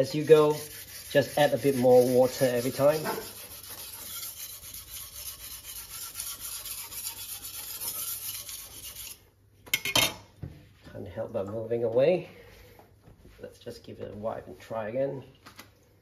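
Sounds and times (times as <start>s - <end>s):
knife scraping whetstone: 0.0s - 9.2s.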